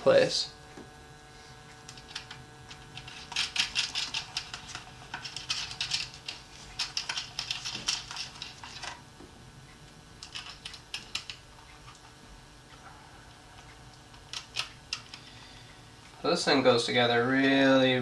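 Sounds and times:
copper wire clicking and scraping: 0:01.7 - 0:09.0.

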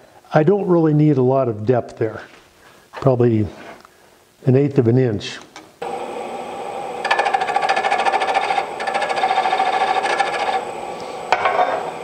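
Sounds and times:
wood lathe whining: 0:05.8 - 0:12.0
turning tool scraping wood: 0:07.0 - 0:10.7.

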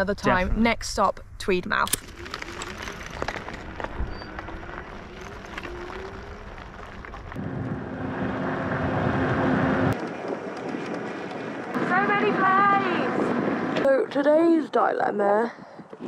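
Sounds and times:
rushing noise with hum: 0:03.7 - 0:14.4.

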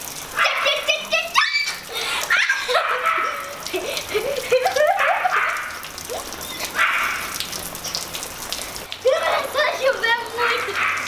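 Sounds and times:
rain on tiles: 0:00.0 - 0:11.0
high-pitched yelps: 0:00.4 - 0:03.6, 0:04.8 - 0:07.3.

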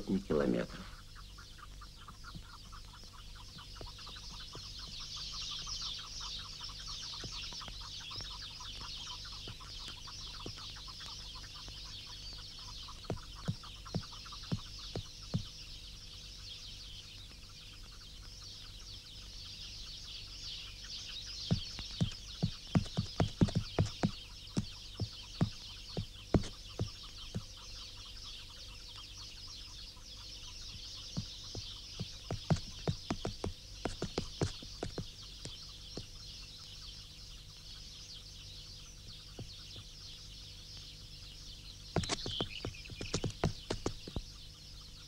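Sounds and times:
high chirring with fine ticking: 0:21.2 - 0:27.5, 0:30.7 - 0:36.2, 0:42.0 - 0:44.2
sharp clucking clicks: 0:21.5 - 0:27.5, 0:31.3 - 0:35.0, 0:42.0 - 0:44.2.

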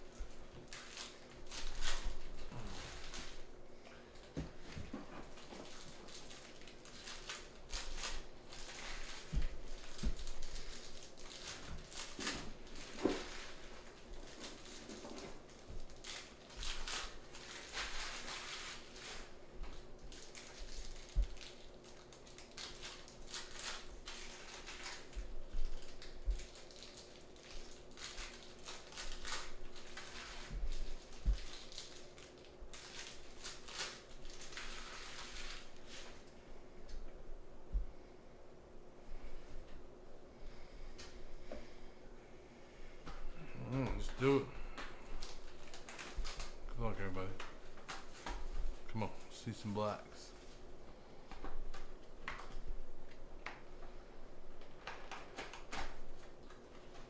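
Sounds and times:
card wrappers crinkling and rustling: 0:00.1 - 0:03.5, 0:04.1 - 0:36.3, 0:43.6 - 0:50.7, 0:54.6 - 0:57.0
soft low thumps: 0:37.6 - 0:38.0.

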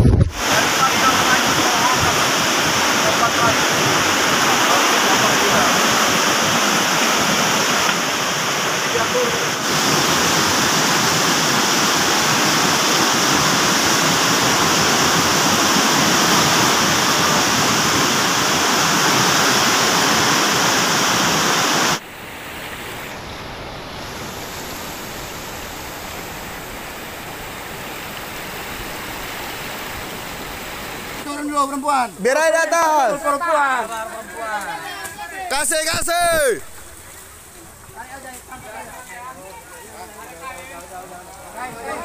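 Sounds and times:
river rapids rushing: 0:00.3 - 0:42.0.

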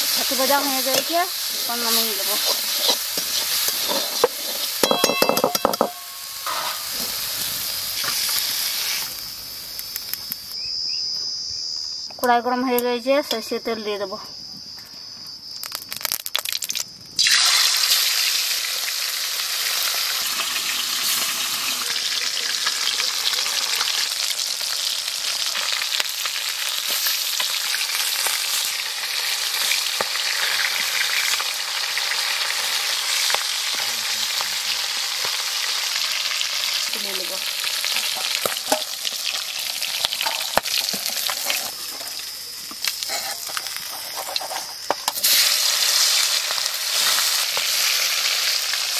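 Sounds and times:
fish sizzling in hot oil: 0:00.0 - 0:10.6, 0:15.7 - 0:48.9
spatula scraping pan: 0:00.9 - 0:07.0, 0:43.1 - 0:44.7.

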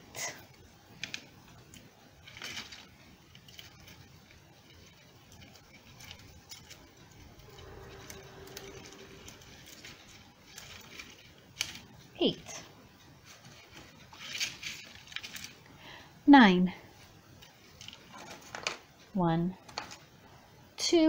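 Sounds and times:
dry twigs clicking and rustling: 0:00.5 - 0:12.2, 0:13.0 - 0:15.8, 0:17.3 - 0:18.8.

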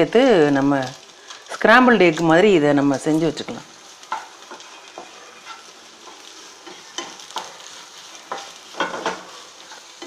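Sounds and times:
egg sizzling in a pan: 0:00.0 - 0:10.0
wooden spatula scraping a pan: 0:04.0 - 0:10.0.

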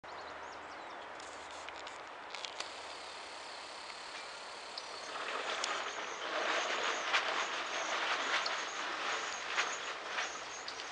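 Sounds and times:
steady background hiss: 0:01.3 - 0:06.2.

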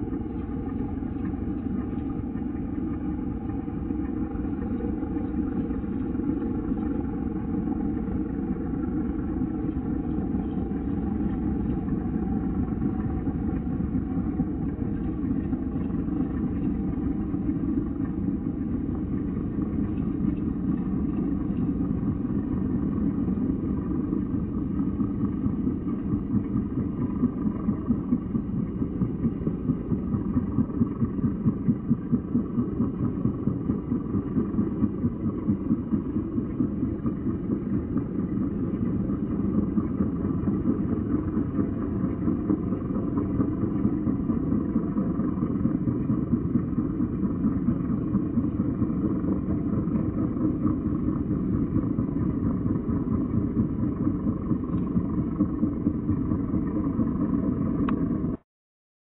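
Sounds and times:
propeller plane engine rumble: 0:00.0 - 0:33.9.

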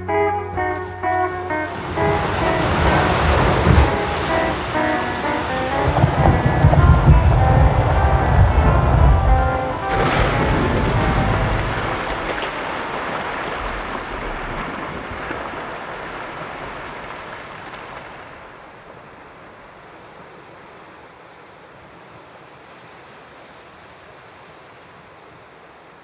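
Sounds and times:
rumble of falling ice and water: 0:01.7 - 0:22.4
ice crashing into the sea: 0:09.9 - 0:18.4.

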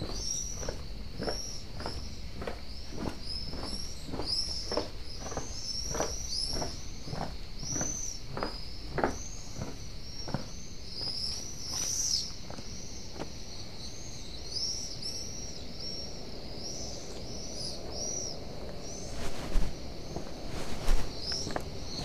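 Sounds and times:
small birds chirping: 0:00.0 - 0:22.0
footsteps: 0:19.1 - 0:22.0.

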